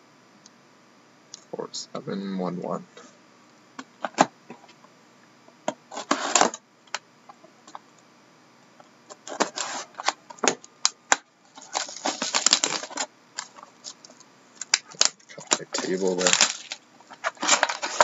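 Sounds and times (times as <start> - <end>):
shrink wrap tearing and crinkling: 11.1 - 18.0.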